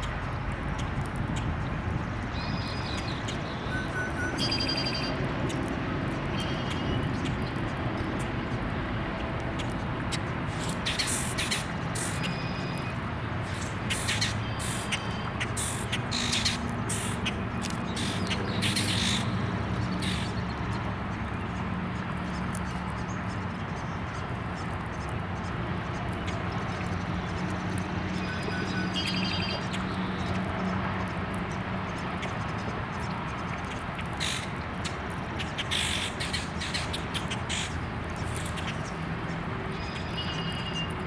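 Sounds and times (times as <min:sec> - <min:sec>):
birds whistling: 0:02.4 - 0:05.1, 0:28.2 - 0:29.7, 0:39.7 - 0:41.0
harsh raspy bird calls: 0:18.0 - 0:19.3, 0:20.0 - 0:20.3, 0:35.5 - 0:37.8.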